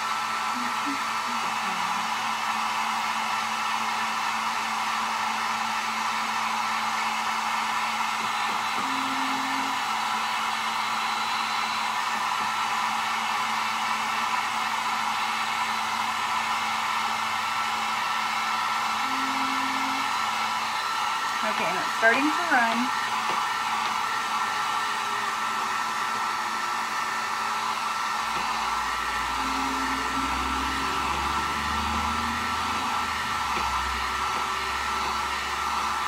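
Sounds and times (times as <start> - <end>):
heat gun blowing air: 0.0 - 36.0.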